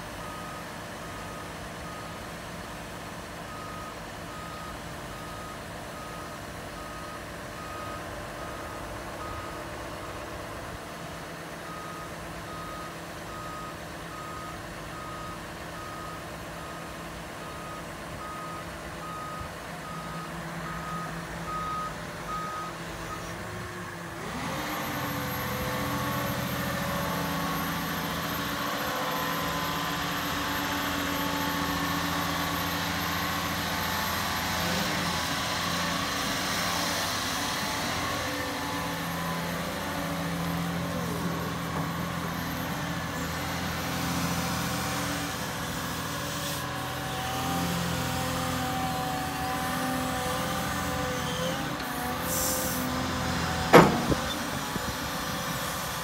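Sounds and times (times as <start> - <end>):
diesel engine running: 0.0 - 56.0
hydraulic whine: 24.1 - 56.0.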